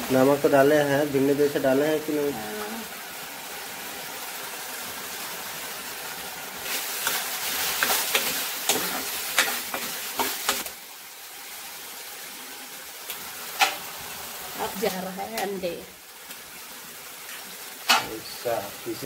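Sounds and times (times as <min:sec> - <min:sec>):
masala sizzling in a pan: 0:00.0 - 0:19.0
spatula scraping a pan: 0:06.6 - 0:10.7.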